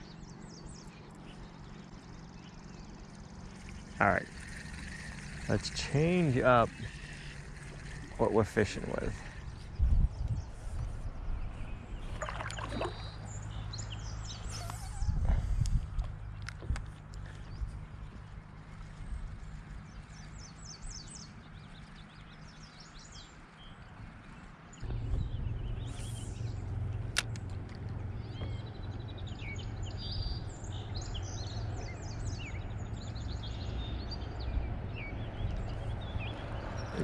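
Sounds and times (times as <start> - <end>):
songbirds chirping: 0.0 - 37.0
wind on microphone: 6.7 - 13.1, 14.5 - 16.9, 24.8 - 26.9.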